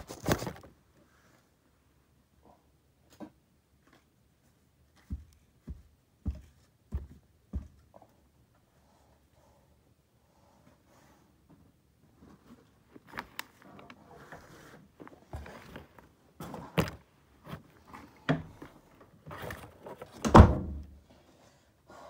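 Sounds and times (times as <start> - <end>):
handling clicks and rustles: 12.2 - 20.3.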